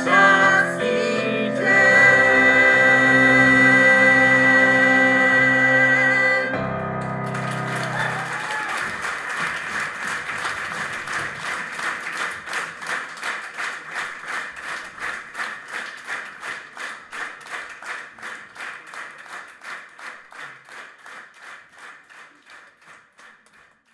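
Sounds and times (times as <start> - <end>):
audience clapping in unison: 7.0 - 23.9.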